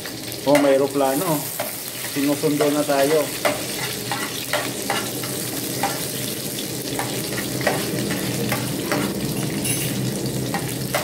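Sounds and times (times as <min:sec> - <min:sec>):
onions sizzling in hot oil: 0:00.0 - 0:11.0
spatula scraping a pan: 0:01.5 - 0:11.0.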